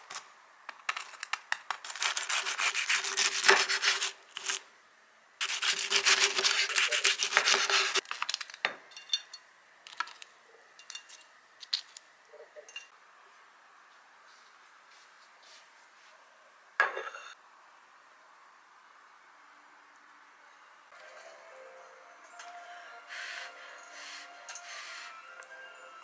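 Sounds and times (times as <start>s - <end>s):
rapid rubbing strokes: 5.4s - 8.0s.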